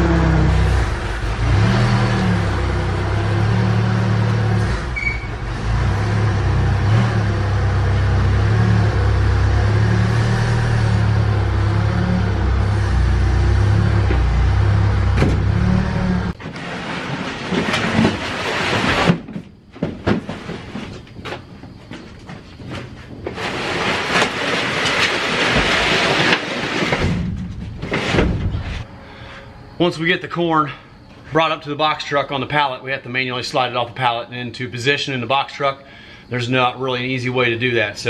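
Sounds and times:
forklift engine running: 0.0s - 18.6s
plastic crates knocking and scraping: 16.4s - 28.8s.

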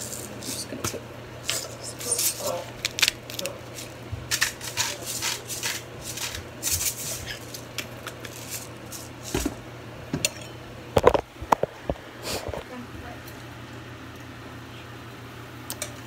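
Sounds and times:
salt grinder rasping: 1.4s - 9.6s
handling knocks and bumps: 2.1s - 10.4s.

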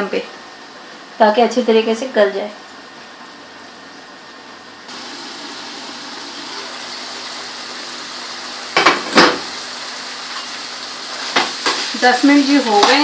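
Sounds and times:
pot hissing on stove: 4.9s - 13.0s.

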